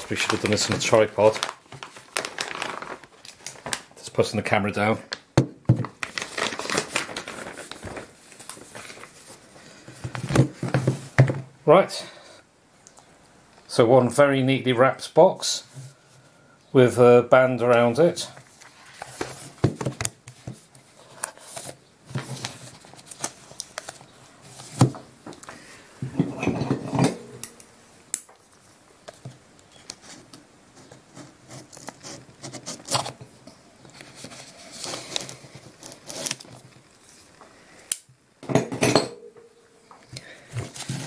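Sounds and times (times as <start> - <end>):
wrapping paper rustling: 0.0 - 5.2, 5.8 - 10.3, 18.4 - 24.8, 28.6 - 33.2, 33.8 - 37.4, 40.4 - 41.0.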